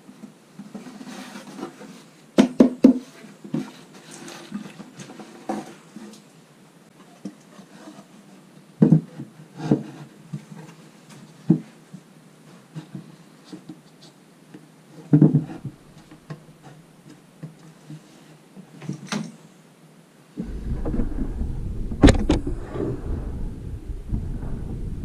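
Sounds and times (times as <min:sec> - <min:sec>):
wooden lid scraping: 0:20.4 - 0:25.0.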